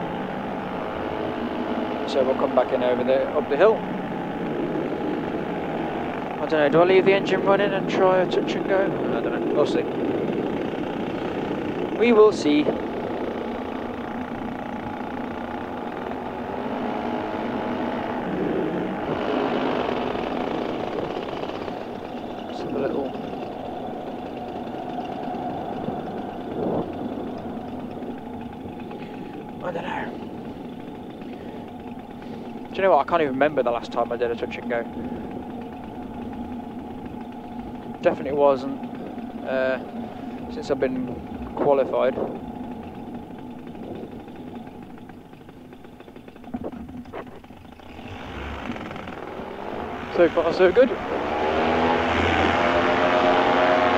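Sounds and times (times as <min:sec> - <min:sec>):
paramotor engine and propeller: 0:00.0 - 0:53.9.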